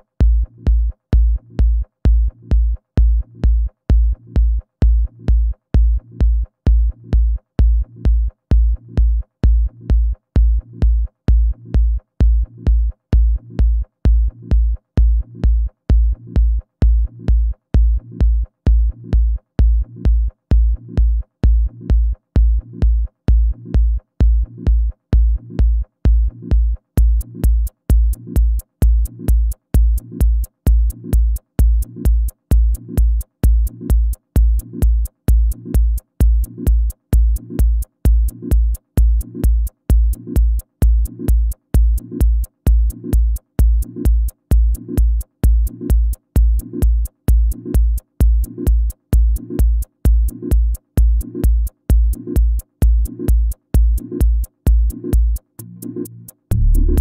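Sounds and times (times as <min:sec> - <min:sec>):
kick drum: 0:00.0 - 0:55.5, 0:56.5 - 0:57.0
hi-hat ticking: 0:26.2 - 0:57.0
electronic dance music: 0:27.2 - 0:57.0.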